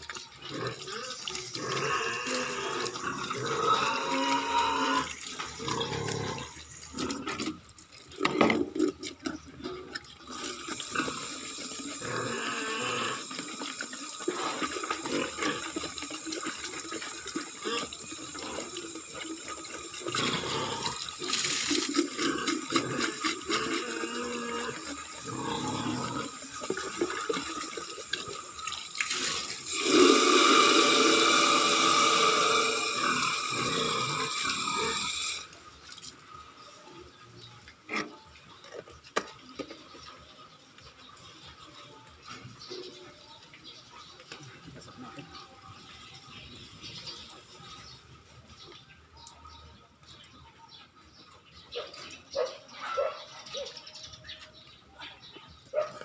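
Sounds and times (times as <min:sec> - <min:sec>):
water running from faucet: 0:00.0 - 0:08.3, 0:09.9 - 0:36.8.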